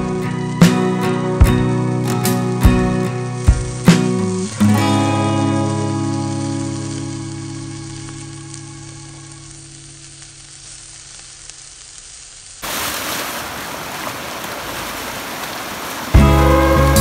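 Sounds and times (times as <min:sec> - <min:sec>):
music: 0:00.0 - 0:10.2, 0:16.2 - 0:17.0
skewers sizzling on charcoal grill: 0:00.0 - 0:12.8, 0:16.1 - 0:17.0
rushing river water: 0:12.6 - 0:17.0
swimmer splashing: 0:12.6 - 0:17.0.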